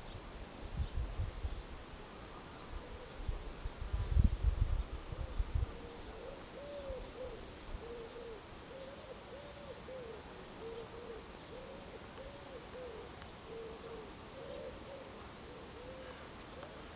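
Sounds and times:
bird hooting: 5.2s - 16.9s.

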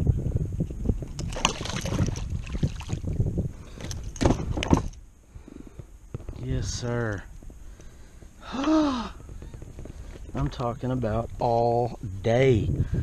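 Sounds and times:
wind rumble on microphone: 0.0s - 13.0s
water splashing: 1.2s - 3.2s.

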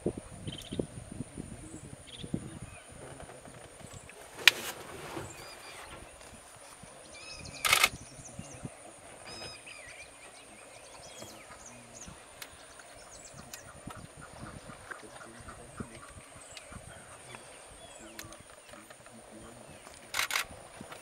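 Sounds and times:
high insect drone: 0.0s - 21.0s
birds chirping and whistling: 3.8s - 20.3s.

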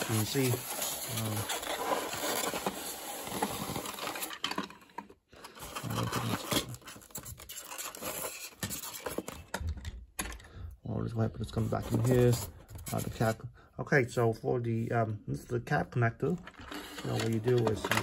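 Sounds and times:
plastic scraping on styrofoam: 0.0s - 4.7s, 5.5s - 9.4s, 16.5s - 18.0s.

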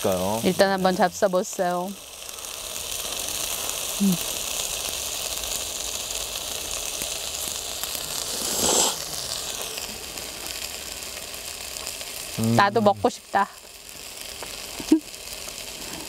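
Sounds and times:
steady hiss: 0.0s - 16.0s
person slurping noodles: 8.2s - 9.1s.

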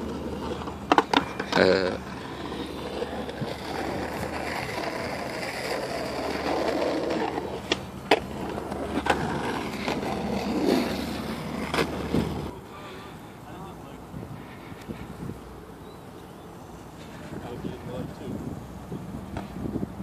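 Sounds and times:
skateboard clacks: 0.0s - 12.5s
skateboard rolling on concrete: 0.0s - 20.0s.

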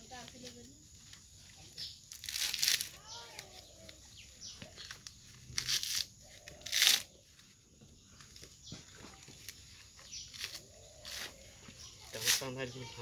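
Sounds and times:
coconut husk fibre ripping: 2.0s - 4.0s, 4.6s - 7.1s, 10.2s - 11.4s, 12.1s - 12.6s.

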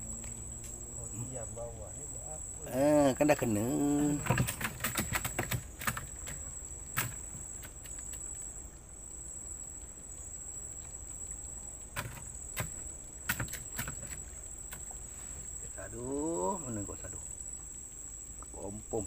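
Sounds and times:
insects chirring: 0.0s - 19.0s
sharp clicks: 3.3s - 8.4s, 10.8s - 14.9s.

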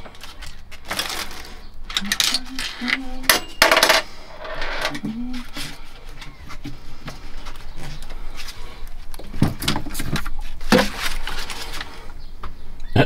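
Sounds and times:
tools and parts clattering: 0.0s - 5.1s, 7.4s - 12.0s.

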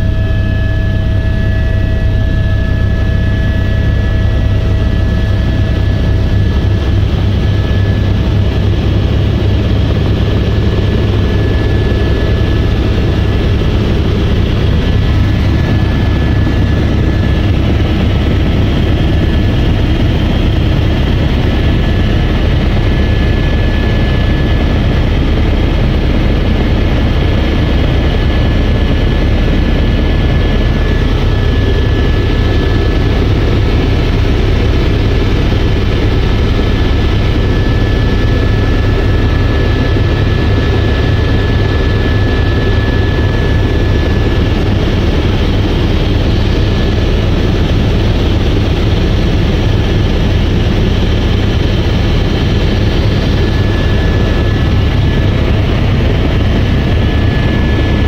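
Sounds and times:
helicopter rotor and engine rumble: 0.0s - 58.0s.

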